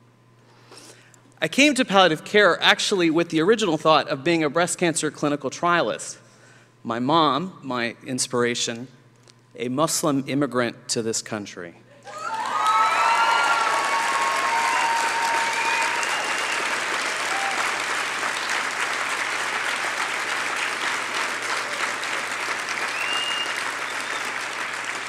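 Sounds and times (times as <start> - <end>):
voices cheering: 12.0 - 25.0
audience applauding: 12.1 - 25.0.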